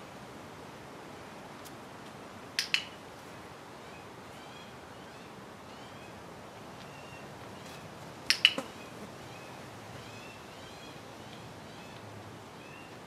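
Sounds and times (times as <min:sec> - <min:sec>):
training clicker click: 0:02.6 - 0:03.0.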